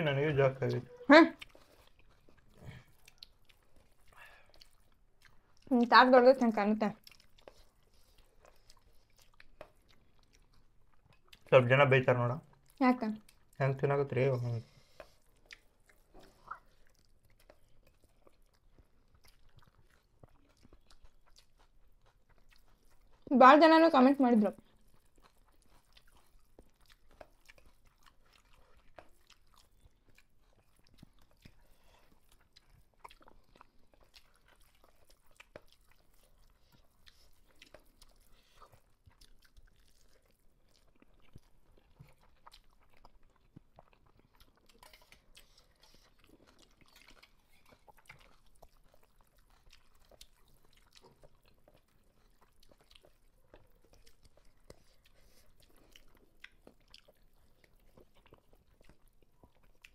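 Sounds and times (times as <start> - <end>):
people chewing food: 0.0 - 59.9.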